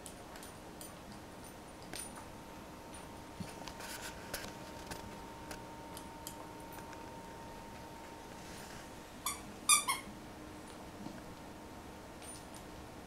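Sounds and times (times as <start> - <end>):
toy squeak: 9.2 - 10.1.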